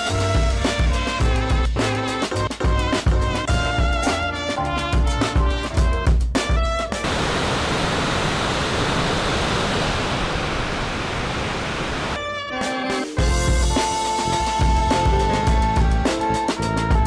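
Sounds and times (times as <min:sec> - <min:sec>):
background music: 0:00.0 - 0:07.0, 0:12.2 - 0:17.0
water pouring over waterfall: 0:07.0 - 0:12.2.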